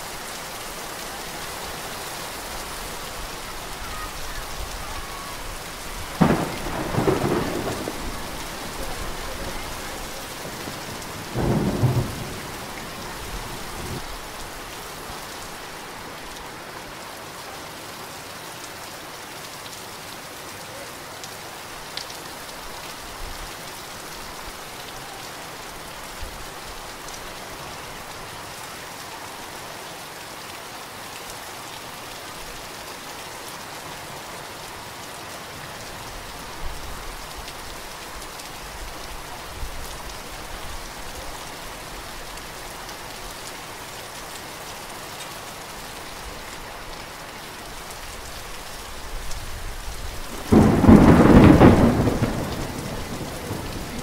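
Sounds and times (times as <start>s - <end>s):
heavy rain falling: 0.0s - 54.0s
thunder rumbling: 6.0s - 14.4s, 50.3s - 54.0s
thunderclap: 6.2s - 14.0s, 50.3s - 54.0s.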